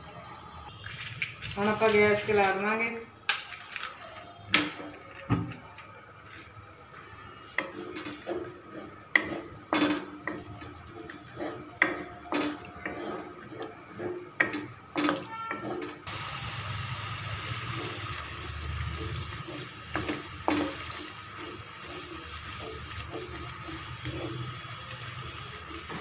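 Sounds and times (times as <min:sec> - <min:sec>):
spatula knocking and scraping pan: 0:07.6 - 0:16.0, 0:18.9 - 0:26.0
spatula stirring thick sauce: 0:10.3 - 0:14.5, 0:17.7 - 0:26.0.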